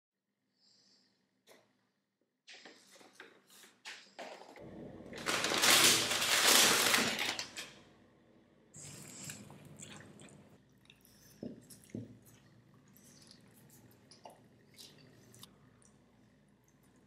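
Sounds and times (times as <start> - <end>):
paper bag crinkling: 4.6 - 7.8.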